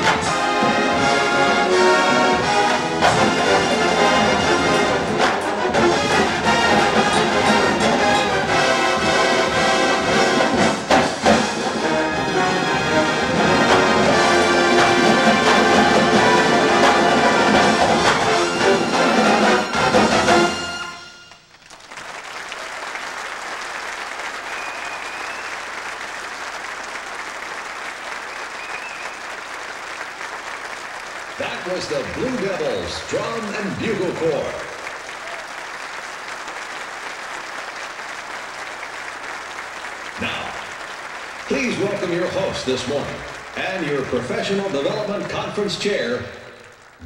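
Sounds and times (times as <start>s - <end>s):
brass playing sustained chords: 0.0s - 21.4s
audience applauding: 0.0s - 47.0s.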